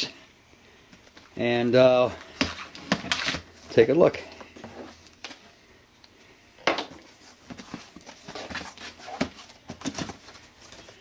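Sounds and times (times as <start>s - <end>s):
cardboard flaps rustling: 7.0s - 11.0s.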